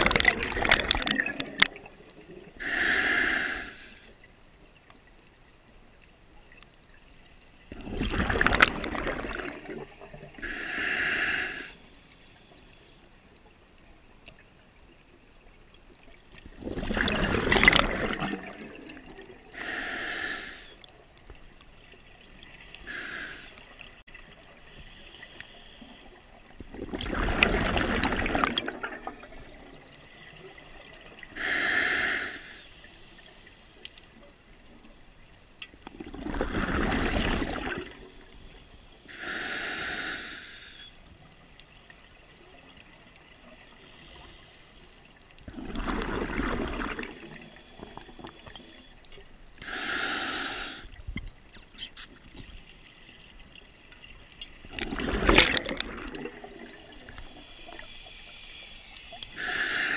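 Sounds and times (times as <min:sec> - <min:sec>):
exhaled bubbles rushing: 0:00.0 - 0:02.6, 0:07.7 - 0:10.4, 0:16.5 - 0:19.5, 0:26.6 - 0:31.3, 0:35.8 - 0:38.2, 0:45.5 - 0:48.6, 0:54.6 - 0:57.2
regulator hiss on inhale: 0:02.6 - 0:04.1, 0:09.2 - 0:13.1, 0:19.5 - 0:20.8, 0:22.8 - 0:23.6, 0:24.6 - 0:26.2, 0:31.3 - 0:34.2, 0:38.3 - 0:41.0, 0:43.7 - 0:45.3, 0:49.6 - 0:51.0, 0:56.4 - 0:59.9.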